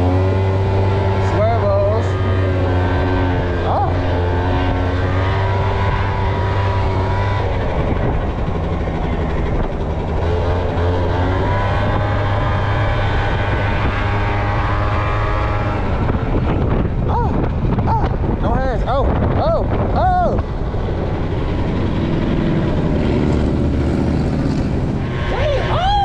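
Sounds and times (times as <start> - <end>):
scooter engine running: 0.0 - 18.4
wind and road noise: 0.0 - 26.0.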